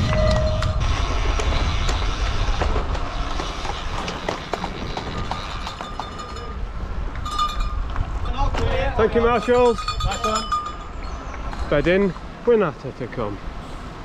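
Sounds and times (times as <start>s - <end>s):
short ringing tone: 0.0s - 0.8s
wind rushing over microphone: 0.0s - 12.4s.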